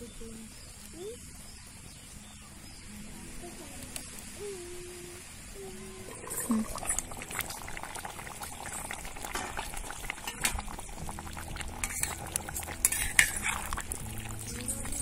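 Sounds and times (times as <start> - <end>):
curry bubbling at a boil: 0.0 - 15.0
ladle stirring: 6.0 - 15.0.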